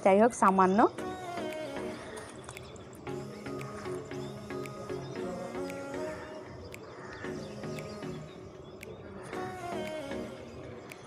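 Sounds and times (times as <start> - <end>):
light ticking percussion: 0.0 - 10.3
held synth notes: 0.4 - 10.9.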